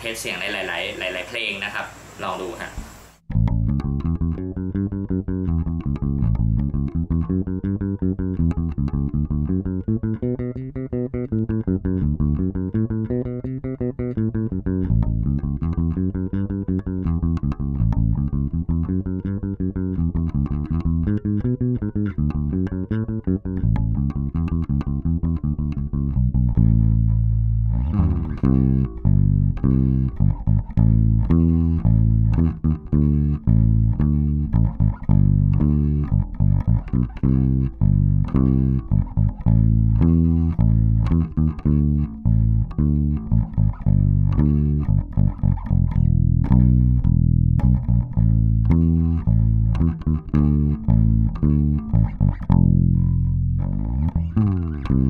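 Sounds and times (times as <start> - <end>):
electric bass plucked fingerstyle: 3.2 - 55.0.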